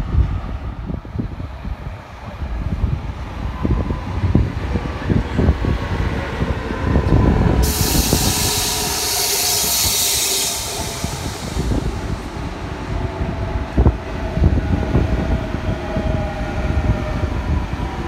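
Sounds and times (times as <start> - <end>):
train wheels rumbling on track: 0.0 - 18.0
loud steady hiss: 7.6 - 12.2.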